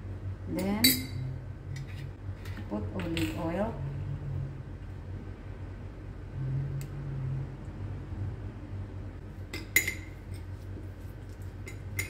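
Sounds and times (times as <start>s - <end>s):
low steady hum: 0.0s - 12.0s
metal spoon clinking glass bowl: 9.5s - 10.4s.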